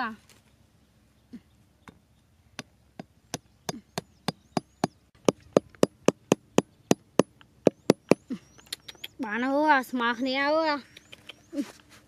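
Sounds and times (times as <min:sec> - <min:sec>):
hammer knocking wooden stakes: 0:02.6 - 0:08.2.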